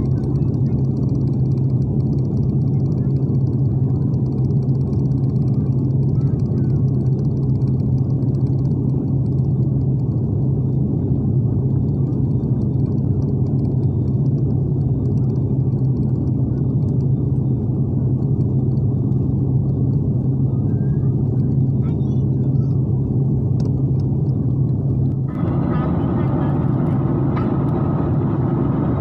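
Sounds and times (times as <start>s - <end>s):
jet cabin drone: 0.0s - 29.0s.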